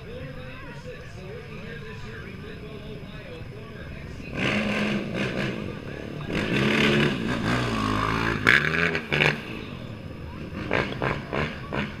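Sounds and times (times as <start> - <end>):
quad engine revving: 4.2 - 12.0.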